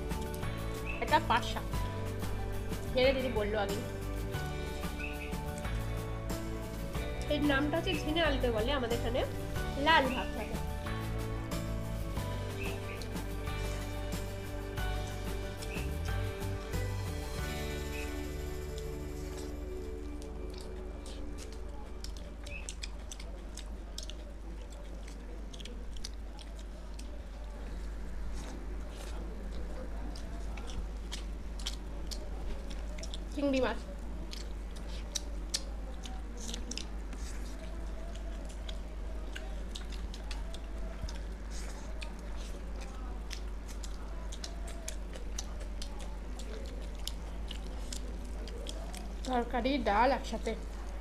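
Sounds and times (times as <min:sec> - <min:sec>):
people chewing food: 0:00.0 - 0:51.0
wet mouth clicks and smacks: 0:20.1 - 0:27.3, 0:29.5 - 0:33.4, 0:34.0 - 0:49.3.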